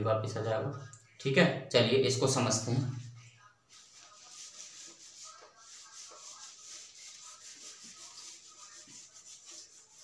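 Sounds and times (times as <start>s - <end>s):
whiteboard being wiped: 2.5s - 10.0s.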